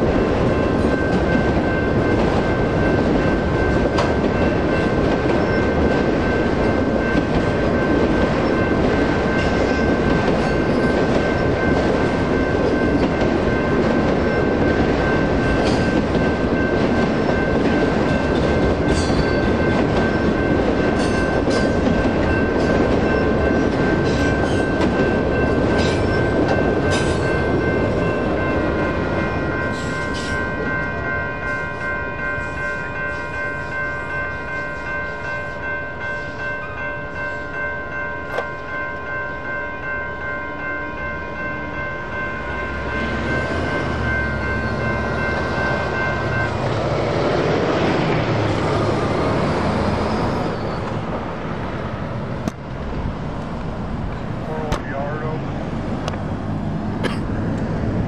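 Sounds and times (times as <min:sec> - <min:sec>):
crossing bell ringing: 0:00.0 - 0:52.8, 0:53.8 - 0:58.0
wheels clicking on rail: 0:00.1 - 0:31.1
freight cars rumbling past: 0:42.2 - 0:58.0.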